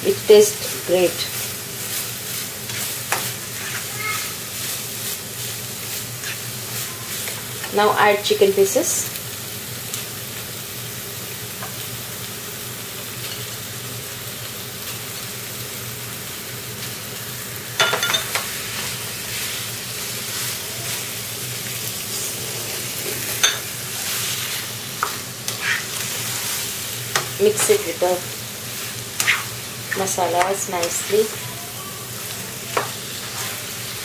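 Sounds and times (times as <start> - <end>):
chicken sizzling in oil: 0.0 - 34.0
spatula scraping pan: 1.2 - 4.8, 5.9 - 7.7, 22.1 - 28.1, 28.7 - 31.4, 32.7 - 33.8.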